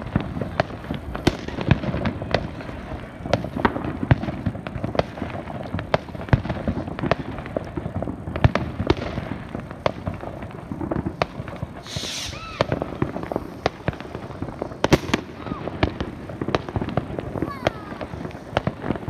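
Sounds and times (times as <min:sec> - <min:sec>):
fireworks bangs and cracks: 0:00.0 - 0:19.0
firework hissing whistle: 0:10.6 - 0:19.0.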